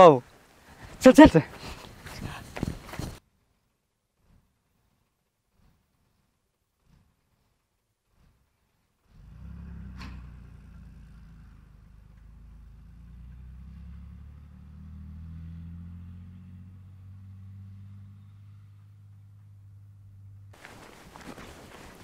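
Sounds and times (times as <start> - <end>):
bus diesel engine rumbling: 8.2 - 21.1.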